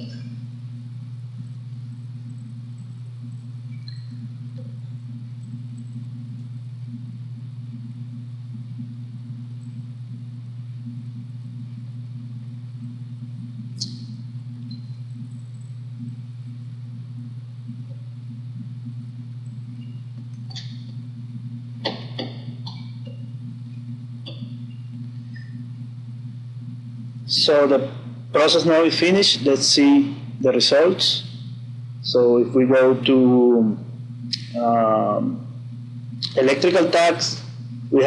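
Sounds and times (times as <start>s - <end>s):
low electrical hum: 0.0s - 38.0s
sharp click: 13.8s - 14.1s.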